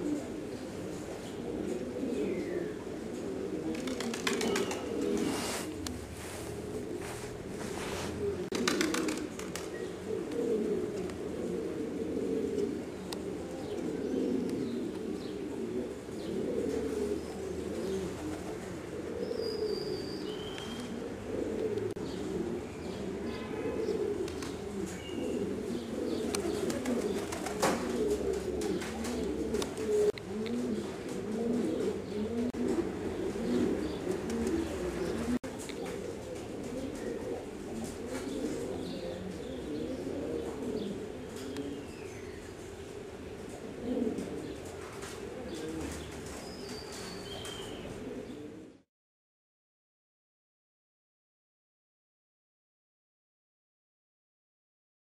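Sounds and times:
pigeons cooing: 0:00.0 - 0:48.9.

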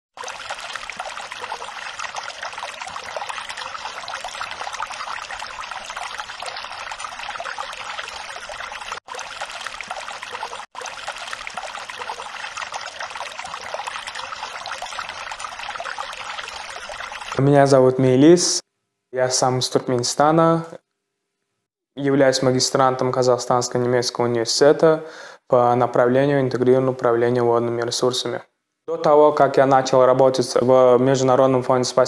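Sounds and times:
water trickling: 0:00.1 - 0:17.8.

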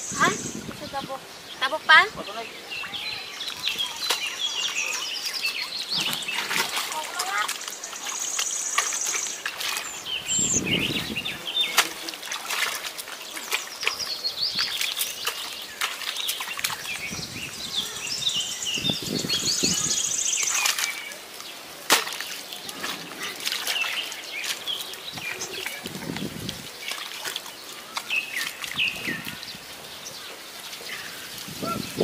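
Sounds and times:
birds chirping: 0:00.0 - 0:32.0
bare feet squelching in mud: 0:02.7 - 0:31.8.

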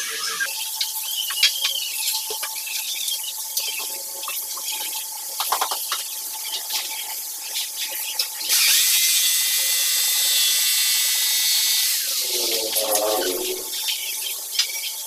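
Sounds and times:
circular saw cutting wood: 0:08.4 - 0:13.8.

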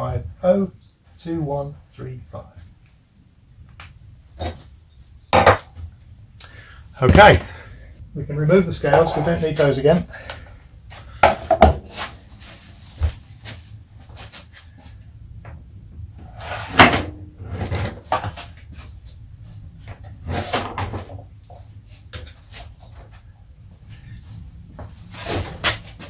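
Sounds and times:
knocks and clunks on workbench: 0:05.3 - 0:05.7, 0:11.2 - 0:11.9.

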